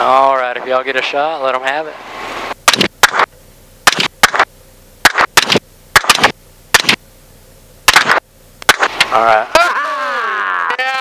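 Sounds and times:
rifle shots: 2.6s - 7.0s, 7.9s - 9.1s.

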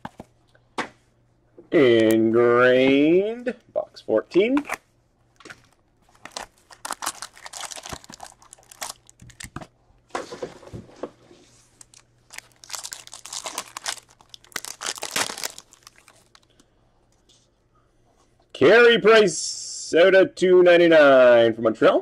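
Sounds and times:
foil pack crinkling and tearing: 5.6s - 9.6s, 11.7s - 16.5s.

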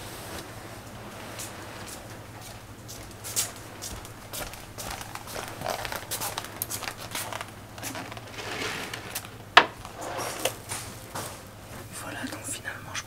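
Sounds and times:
fabric curtain drawn shut: 7.9s - 10.7s.

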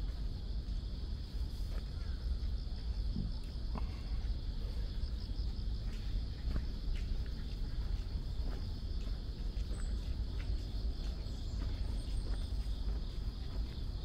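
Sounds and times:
crickets chirring: 0.0s - 14.0s.

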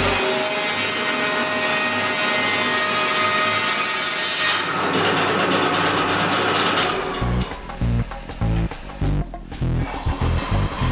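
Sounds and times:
band saw blade cutting log: 0.0s - 7.6s.

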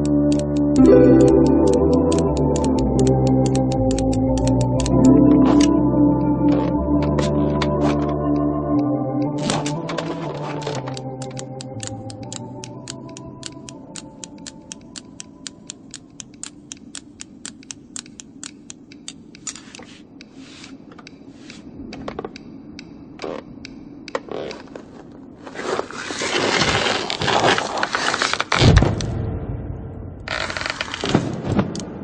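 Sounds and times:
knitting needles clicking: 0.0s - 5.7s, 9.4s - 21.6s
knitting scraping over rock: 24.3s - 28.5s.

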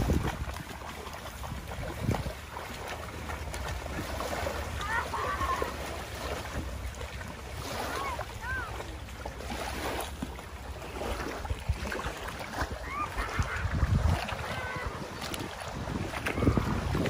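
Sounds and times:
wind rumble on microphone: 0.0s - 5.6s, 10.9s - 17.0s
children splashing in water: 0.0s - 17.0s
small waves: 0.0s - 17.0s
child calling out: 4.8s - 5.8s, 7.9s - 8.8s, 14.4s - 15.0s.

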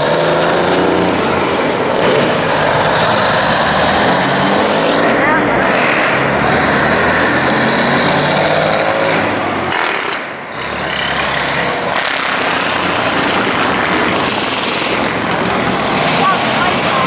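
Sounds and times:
diesel trucks driving past: 0.0s - 17.0s.

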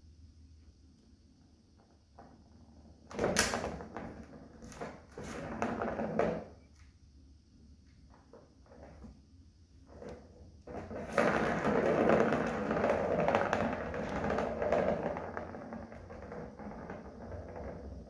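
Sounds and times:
plastic ball rolling around track: 1.8s - 6.6s, 8.0s - 9.2s, 9.8s - 18.0s.

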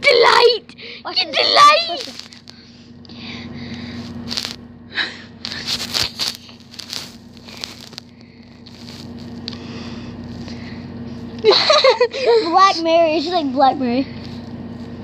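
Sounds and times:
steady low hum: 0.0s - 15.0s
rustling and scratching: 1.6s - 2.5s, 3.8s - 4.6s, 5.4s - 9.5s.

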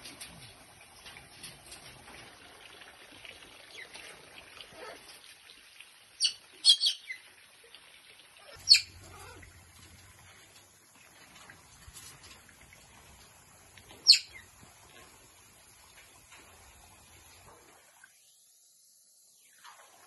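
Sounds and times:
parrots chirping: 8.4s - 9.5s, 14.0s - 14.5s
parrots squawking loudly: 8.4s - 9.5s.

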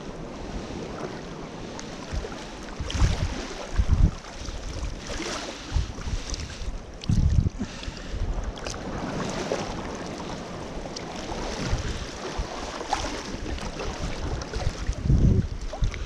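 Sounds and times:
sea water sloshing and splashing: 0.0s - 16.0s
wind buffeting microphone: 0.0s - 16.0s.

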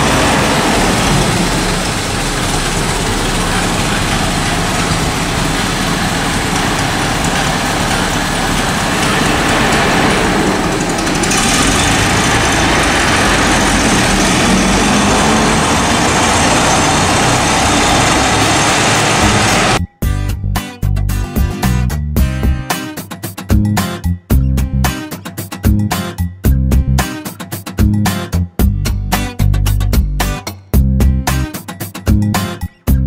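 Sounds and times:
old car engine driving off: 0.0s - 19.8s.

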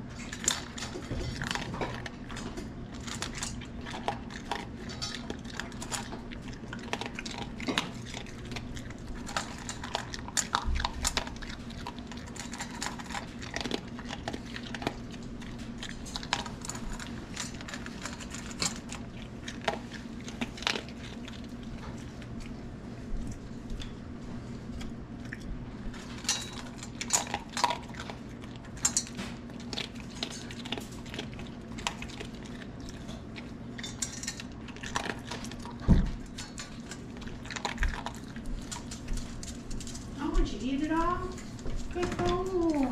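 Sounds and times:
dog crunching dry food: 0.0s - 42.9s
food clinking against metal bowl: 33.8s - 35.6s.

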